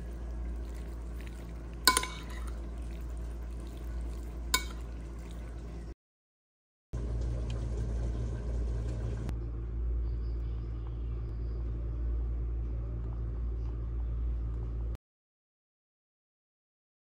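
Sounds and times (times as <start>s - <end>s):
steady low rumble: 7.0s - 15.0s.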